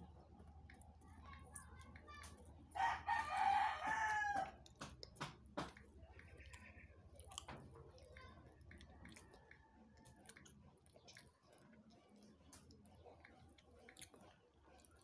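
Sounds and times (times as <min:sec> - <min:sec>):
person chewing crackers: 0:00.0 - 0:15.0
rooster crowing: 0:02.8 - 0:04.6.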